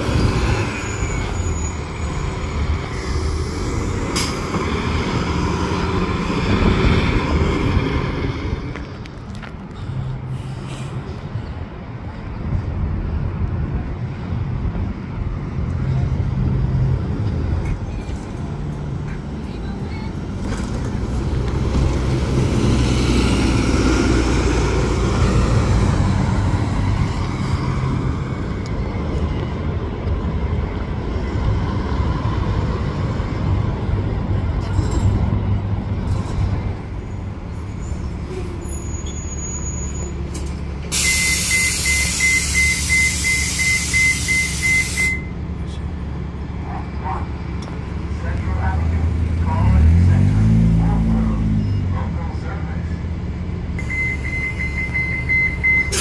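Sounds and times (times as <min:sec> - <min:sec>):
bus diesel engine rumble: 0:00.0 - 0:56.0
loud air hiss: 0:40.9 - 0:45.1.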